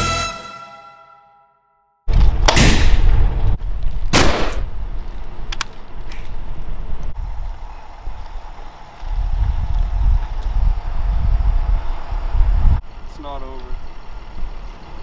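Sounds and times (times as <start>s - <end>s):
wind rumble on microphone: 2.1s - 15.0s
loud gunshots: 4.1s - 4.6s.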